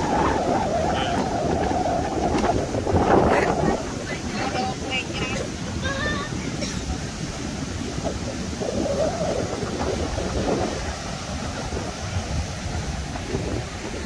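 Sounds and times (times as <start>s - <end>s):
heavy surf breaking on beach: 0.0s - 14.0s
wind buffeting microphone: 0.0s - 14.0s.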